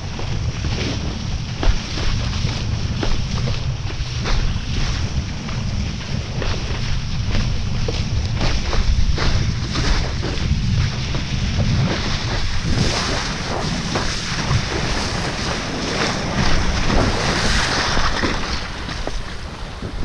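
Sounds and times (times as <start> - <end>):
kiteboard slapping on choppy water: 0.0 - 20.0
wind buffeting microphone: 0.0 - 20.0.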